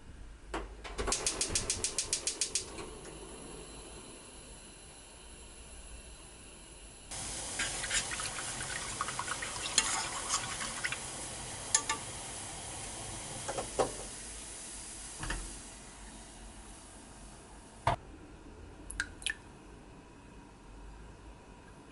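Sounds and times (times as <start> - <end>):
milk sizzling in a saucepan: 7.1 - 16.0.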